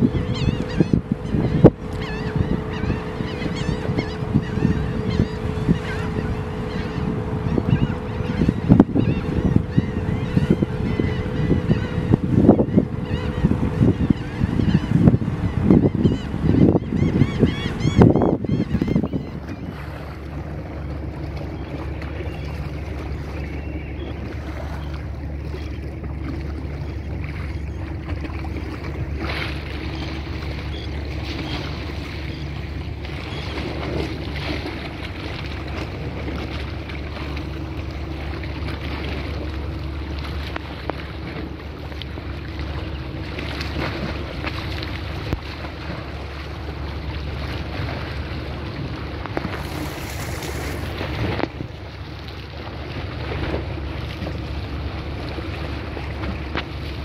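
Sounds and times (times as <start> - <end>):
wind buffeting microphone: 0.0 - 41.5
boat engine droning: 0.0 - 57.0
waves washing: 0.0 - 57.0.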